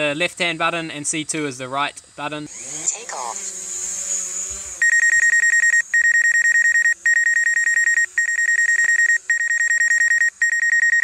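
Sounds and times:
fast high-pitched warning beeps: 4.8s - 11.0s.

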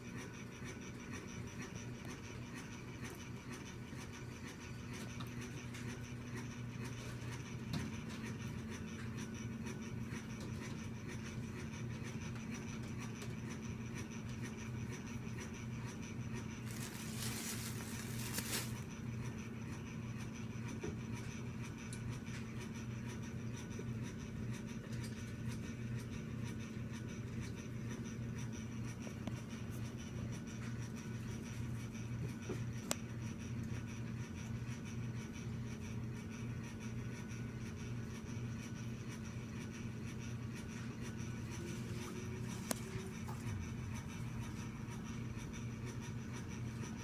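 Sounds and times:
low electrical hum: 0.0s - 47.0s
short rustle: 16.6s - 18.8s
light scratching: 16.6s - 18.9s.

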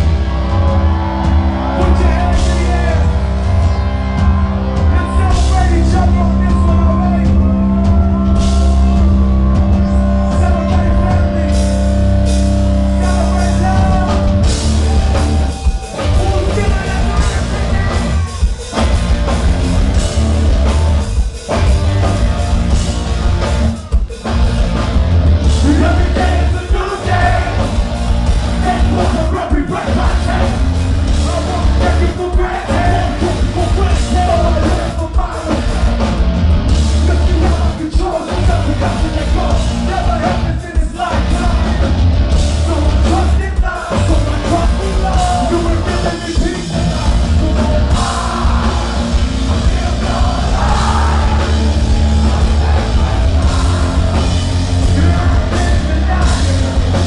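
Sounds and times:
live metal band playing loud: 0.0s - 57.0s
person shouting and singing: 0.4s - 11.8s, 12.9s - 19.0s, 25.6s - 27.7s, 42.6s - 57.0s.

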